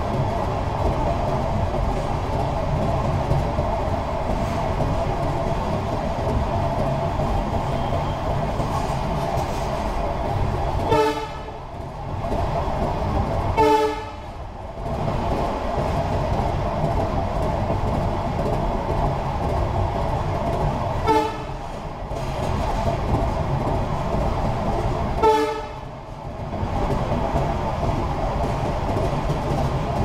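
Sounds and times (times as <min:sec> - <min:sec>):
train wheels rolling on rails: 0:00.0 - 0:30.0
train horn blasts: 0:10.8 - 0:11.6, 0:13.6 - 0:14.2, 0:21.0 - 0:21.6, 0:25.2 - 0:25.8.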